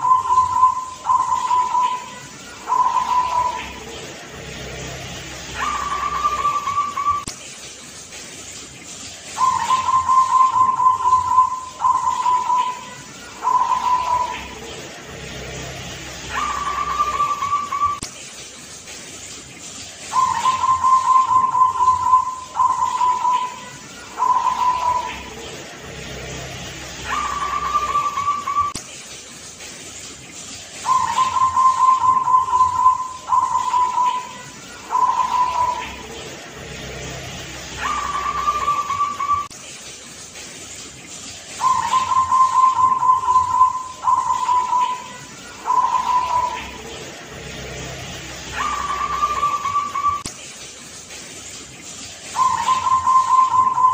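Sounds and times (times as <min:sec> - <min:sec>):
dove cooing: 0:00.0 - 0:07.2, 0:09.4 - 0:15.6, 0:16.2 - 0:18.0, 0:20.1 - 0:28.8, 0:30.8 - 0:36.2, 0:37.7 - 0:39.5, 0:41.6 - 0:47.1, 0:48.4 - 0:50.2, 0:52.4 - 0:53.9.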